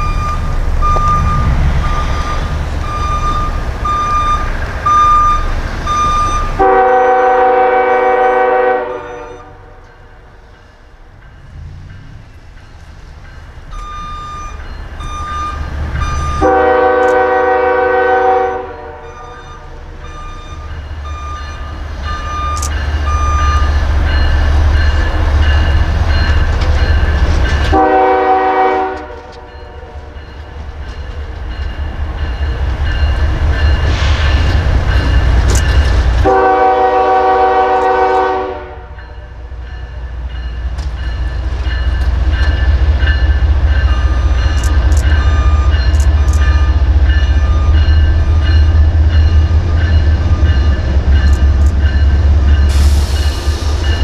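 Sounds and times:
crossing bell ringing: 0:00.0 - 0:54.0
train rumbling: 0:00.0 - 0:54.0
locomotive air horn blasts: 0:06.6 - 0:09.8, 0:16.2 - 0:20.0, 0:27.7 - 0:30.2, 0:36.2 - 0:39.3.

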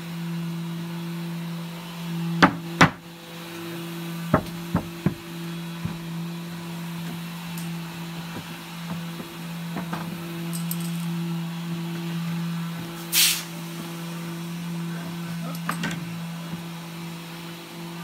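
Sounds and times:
wooden knocks on cabinet: 0:02.4 - 0:03.0, 0:04.3 - 0:06.0.

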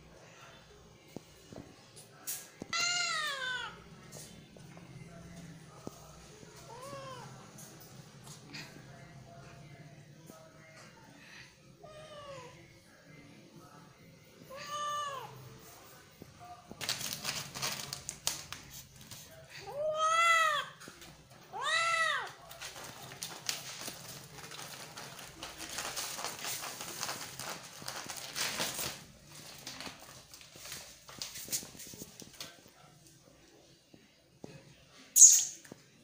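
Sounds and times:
cat meowing: 0:02.7 - 0:03.8, 0:21.5 - 0:22.4.

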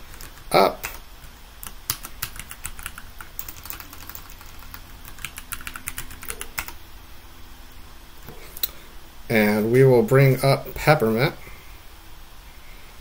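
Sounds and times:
typing on computer keyboard: 0:00.0 - 0:01.0, 0:01.6 - 0:06.8.

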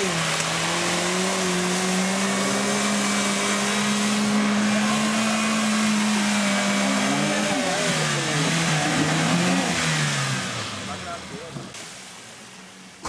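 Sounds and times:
off-road vehicle engine revving: 0:00.0 - 0:11.8
water splashing: 0:00.0 - 0:13.0.

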